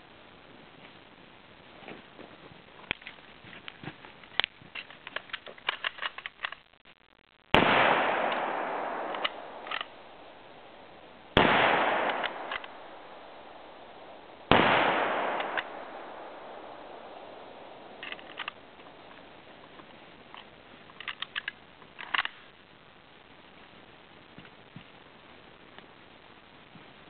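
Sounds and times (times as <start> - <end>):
rifle handling clicks and rattles: 2.8 - 6.7, 9.0 - 10.2, 12.0 - 12.8, 15.3 - 19.3, 20.3 - 22.5
rifle shots echoing: 7.5 - 19.4
rifle bolt clicks: 8.3 - 10.0, 12.0 - 12.8, 15.0 - 18.6.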